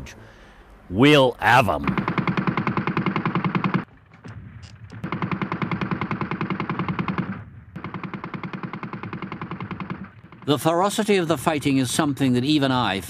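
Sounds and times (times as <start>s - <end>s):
machine gun firing: 1.8s - 11.5s.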